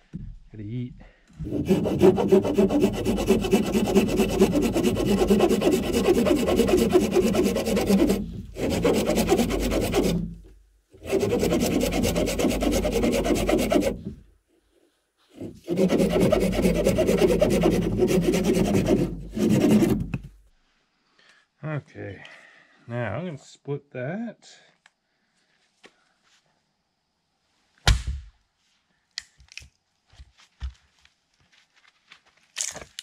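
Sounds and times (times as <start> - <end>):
hand saw cutting branch: 1.4 - 14.2, 15.3 - 20.3.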